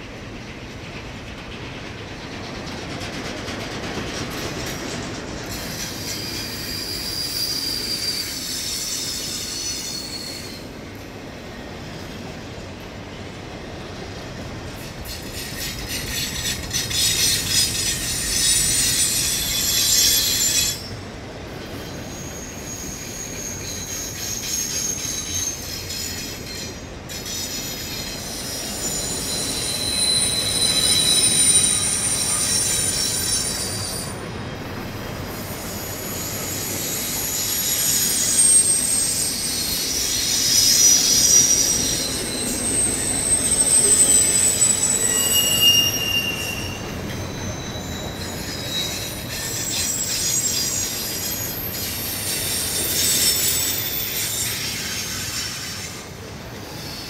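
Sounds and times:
freight train rumbling: 0.0 - 57.0
train wheels squealing: 0.0 - 57.0.

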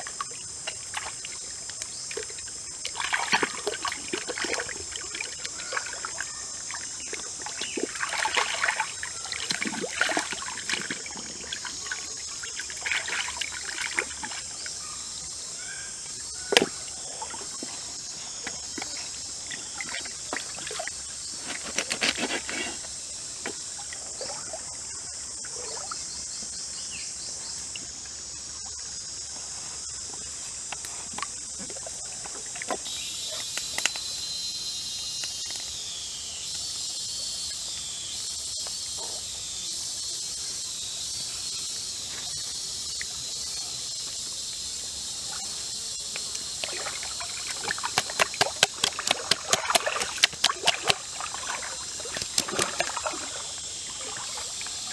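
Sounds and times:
trickling stream: 0.0 - 34.2, 34.9 - 54.9
high insect chorus: 0.0 - 54.9
wet slaps and squelches: 0.1 - 6.0, 7.5 - 11.0, 46.2 - 53.2.

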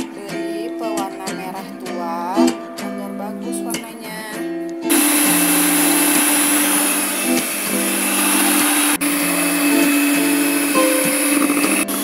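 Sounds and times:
electric hand mixer whirring: 4.9 - 12.0
mixer motor hum: 4.9 - 12.0.

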